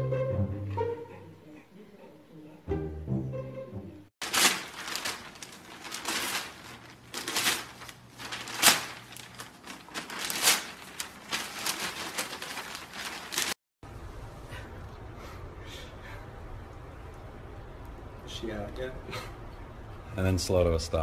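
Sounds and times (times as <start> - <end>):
newspaper rustling and crumpling: 4.2 - 13.6.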